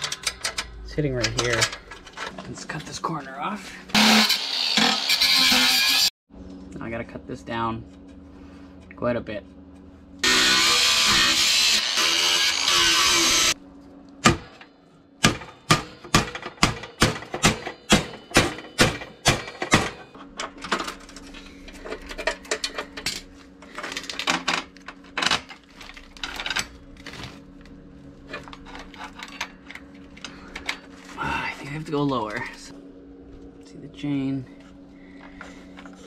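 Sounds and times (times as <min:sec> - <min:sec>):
angle grinder cutting steel: 0:03.9 - 0:06.1, 0:10.2 - 0:13.6
faint steady hum: 0:12.8 - 0:36.0
sharp metal knocks: 0:15.2 - 0:20.1.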